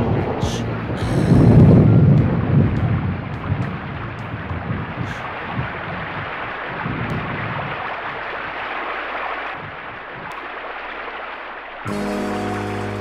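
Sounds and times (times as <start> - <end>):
low rumble: 0.0 - 7.8
steady rushing tape noise: 0.0 - 13.0.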